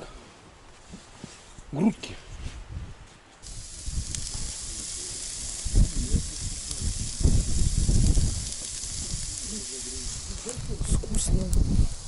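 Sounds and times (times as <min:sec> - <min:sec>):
meat sizzling on a grill: 0:03.4 - 0:12.0.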